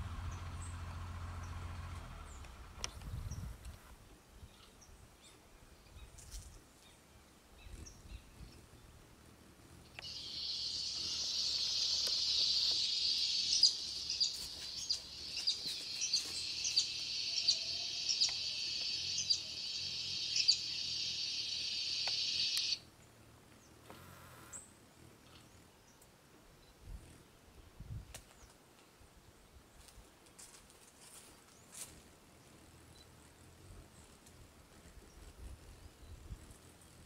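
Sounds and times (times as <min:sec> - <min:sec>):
insect droning high-pitched: 0:09.9 - 0:22.8.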